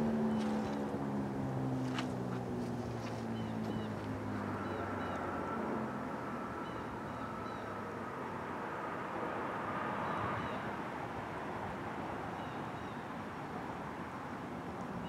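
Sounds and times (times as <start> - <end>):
distant warning siren: 0.0 - 1.6, 2.9 - 8.9
small birds chirping: 0.2 - 0.9, 3.1 - 5.3.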